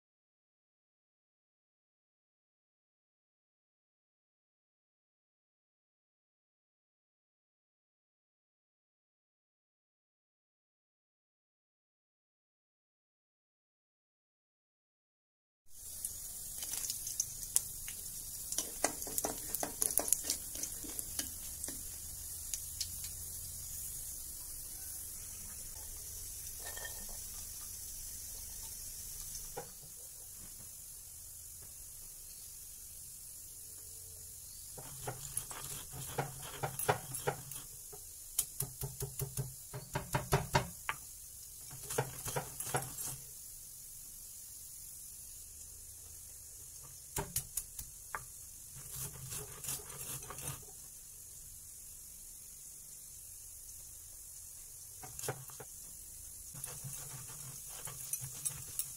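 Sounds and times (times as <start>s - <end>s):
dumplings sizzling in hot oil: 15.7s - 58.9s
spatula clicking and scraping pan: 16.6s - 23.2s, 34.8s - 43.3s, 47.2s - 50.8s, 55.0s - 55.8s, 56.5s - 58.9s.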